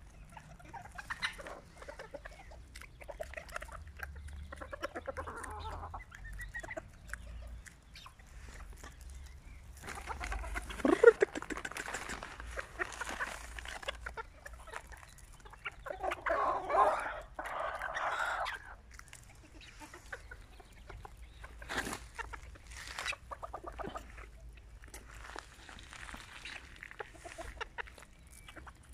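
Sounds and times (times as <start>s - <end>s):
chickens calling loudly: 0.0s - 28.9s
chickens clucking: 0.0s - 28.9s.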